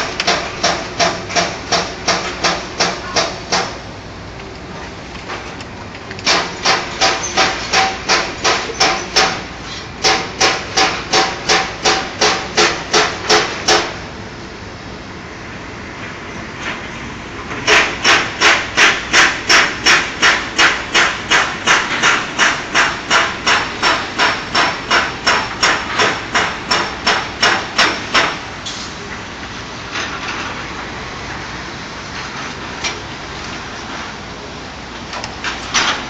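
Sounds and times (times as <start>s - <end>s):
hammer strikes: 0.0s - 3.8s, 6.2s - 14.0s, 17.6s - 28.4s.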